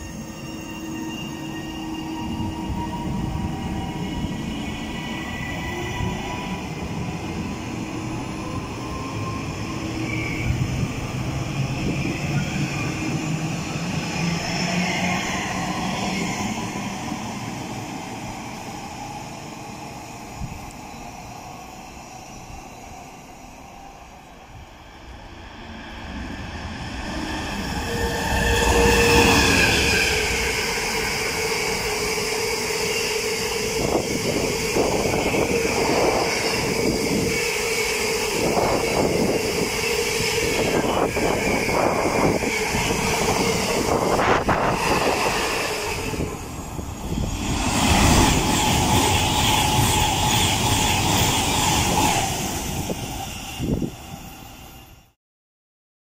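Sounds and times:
electric train passing: 0.0 - 55.2
freight train passing: 0.0 - 55.2.

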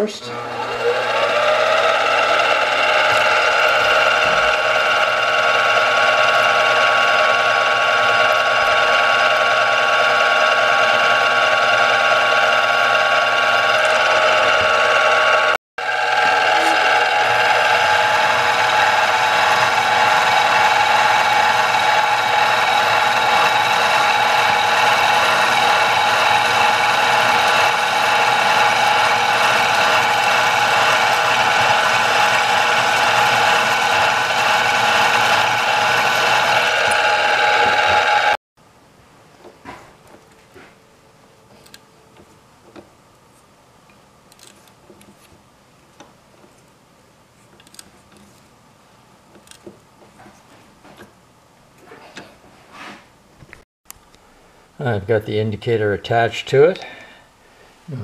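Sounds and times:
drill cutting metal: 0.0 - 38.4
mill motor whine: 0.0 - 38.4.

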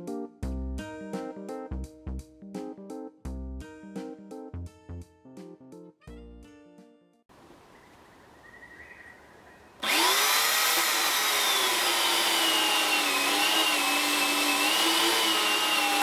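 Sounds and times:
electric chainsaw cutting log: 9.8 - 16.0.

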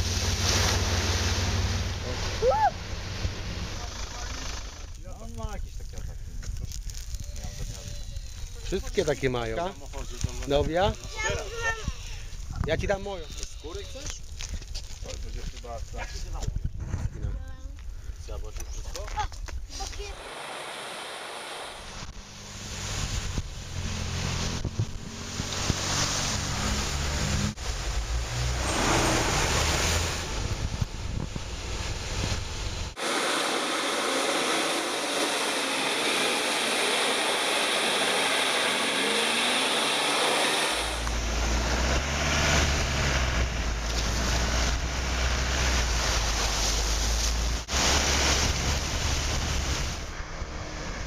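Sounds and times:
water splashing around wheels: 0.0 - 5.6, 19.9 - 51.0
vehicle engines running: 0.0 - 6.1, 22.0 - 33.0, 33.6 - 51.0.

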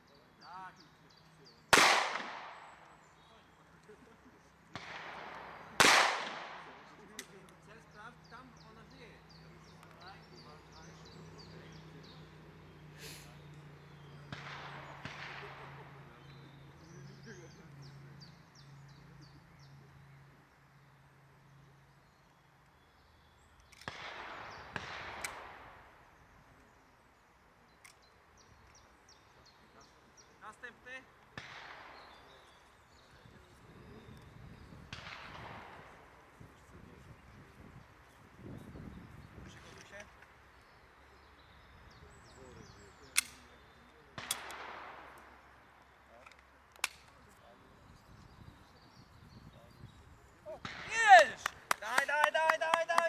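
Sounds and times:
rolling echo: 0.8 - 12.8, 13.5 - 19.8, 23.8 - 27.0, 29.1 - 37.6, 41.1 - 53.0
handgun shots: 1.7 - 2.7, 4.8 - 7.3, 43.1 - 43.4, 44.2 - 45.2, 46.8 - 47.1
pistol shots: 1.7 - 2.9, 4.7 - 7.3, 14.3 - 16.0, 23.7 - 26.0, 31.3 - 32.5, 34.9 - 36.1, 43.1 - 45.6, 50.6 - 51.0.

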